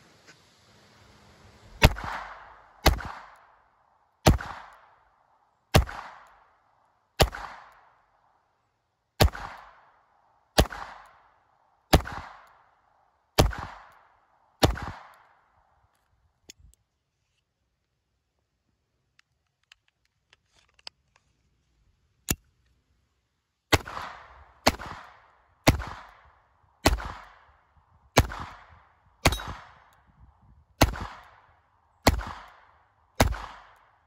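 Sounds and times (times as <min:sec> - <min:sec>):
pistol shots with echo: 0:01.8 - 0:03.5, 0:04.2 - 0:05.0, 0:05.7 - 0:06.5, 0:07.2 - 0:08.0, 0:09.2 - 0:09.9, 0:10.6 - 0:11.2, 0:11.9 - 0:12.5, 0:13.4 - 0:14.0, 0:14.6 - 0:15.2, 0:23.7 - 0:26.2, 0:26.8 - 0:27.5, 0:28.2 - 0:30.0, 0:30.8 - 0:34.0.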